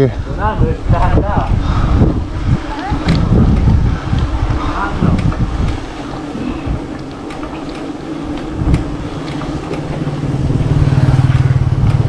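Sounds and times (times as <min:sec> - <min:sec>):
road noise: 0:00.0 - 0:12.0
vehicle engine hum: 0:01.0 - 0:12.0.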